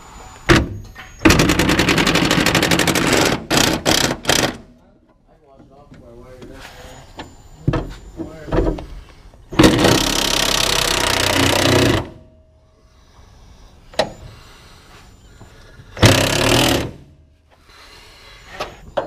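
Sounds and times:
impact wrench hammering: 0:00.5 - 0:04.7, 0:09.5 - 0:12.2.

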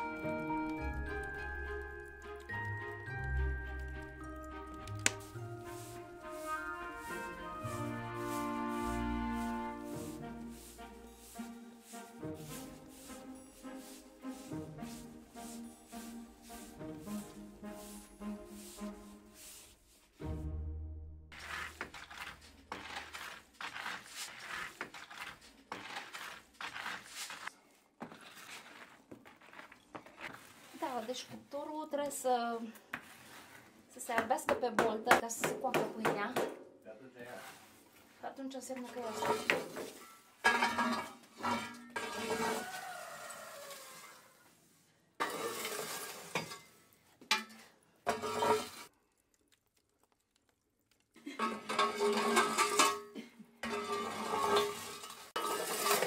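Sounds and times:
pole raking embers in oven: 0:00.2 - 0:20.3, 0:21.3 - 0:31.4, 0:38.8 - 0:44.4, 0:45.2 - 0:49.0, 0:51.2 - 0:56.0.

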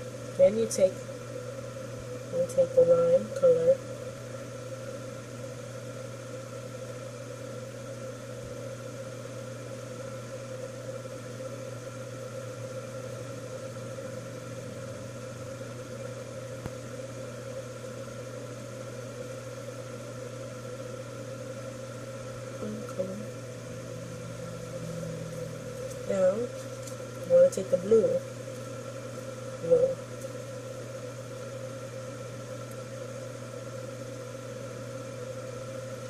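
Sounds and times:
ceiling fan humming and whirring: 0:00.0 - 0:36.0.

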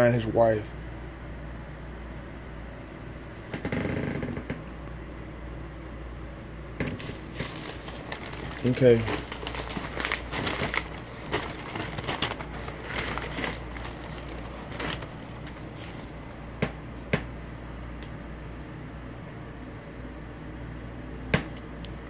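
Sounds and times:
newspaper pages rustling: 0:07.0 - 0:17.1.

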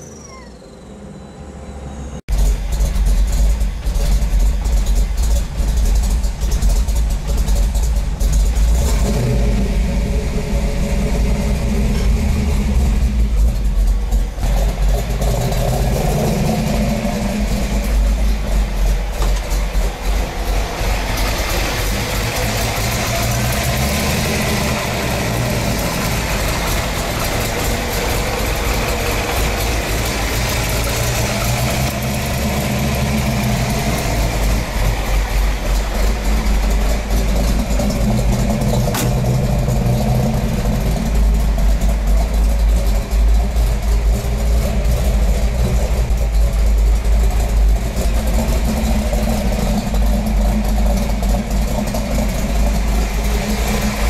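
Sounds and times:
tyres squealing: 0:00.0 - 0:02.2
car engine revving hard: 0:08.1 - 0:42.1, 0:47.7 - 0:54.0.

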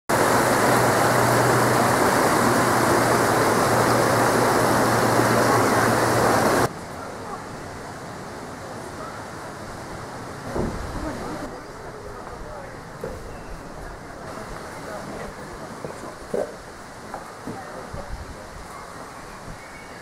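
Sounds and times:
stream rushing over falls: 0:00.1 - 0:20.0.

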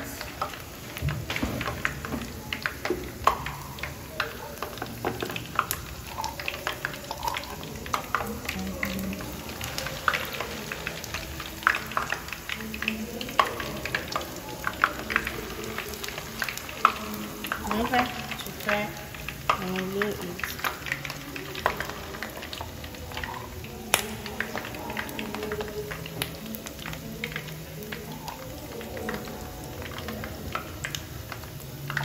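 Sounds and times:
food frying in hot oil: 0:00.0 - 0:32.0.

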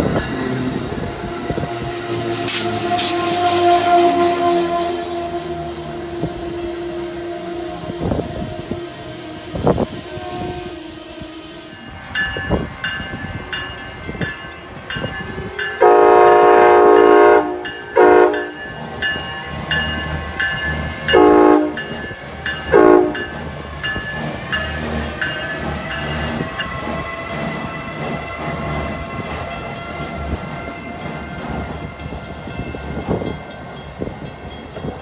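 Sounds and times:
passing train rumble: 0:00.0 - 0:35.0
train horn blasts: 0:00.8 - 0:12.0, 0:15.6 - 0:18.6, 0:21.1 - 0:21.9, 0:22.6 - 0:23.4.

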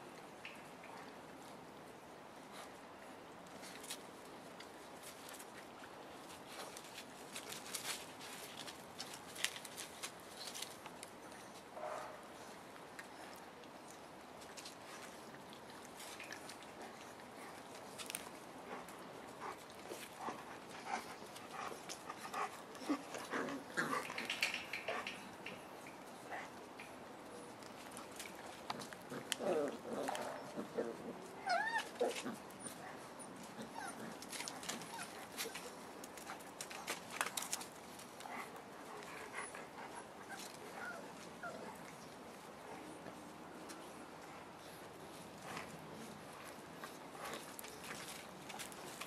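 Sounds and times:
puppies whimpering and squeaking: 0:31.4 - 0:35.8.

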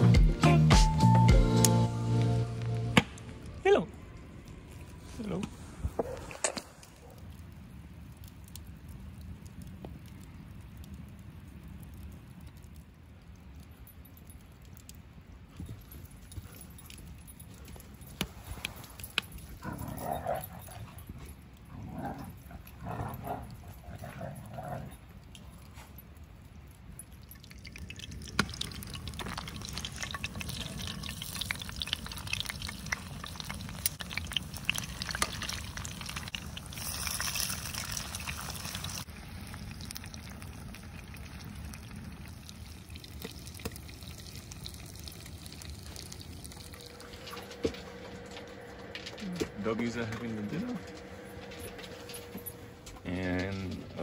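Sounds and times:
dogs barking: 0:06.0 - 0:07.3
food sizzling in a pan: 0:28.3 - 0:40.8.

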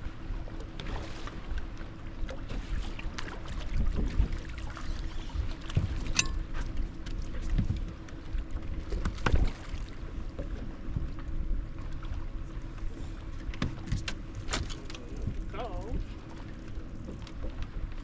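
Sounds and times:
water sloshing against boat hull: 0:00.0 - 0:18.0
wind on microphone: 0:03.7 - 0:06.3, 0:15.0 - 0:16.2
knocks on boat: 0:13.5 - 0:14.7.

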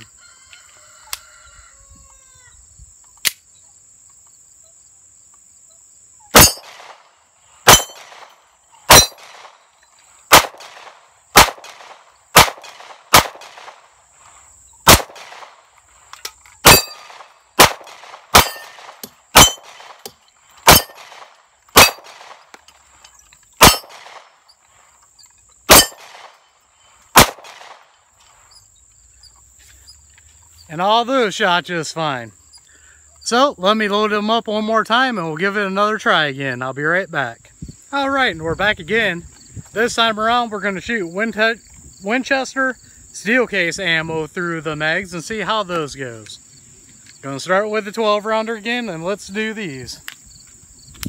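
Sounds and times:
pistol shots: 0:06.3 - 0:09.6, 0:10.3 - 0:13.8, 0:14.8 - 0:15.6, 0:16.6 - 0:22.5, 0:23.6 - 0:24.3, 0:25.7 - 0:26.4, 0:27.1 - 0:27.9
bullets clanging on steel plates: 0:06.4 - 0:06.8, 0:07.7 - 0:08.3, 0:08.9 - 0:09.3, 0:16.2 - 0:17.3, 0:18.4 - 0:21.2, 0:21.8 - 0:22.2, 0:23.0 - 0:24.0, 0:25.7 - 0:26.1
high insect buzz: 0:49.6 - 0:51.0.

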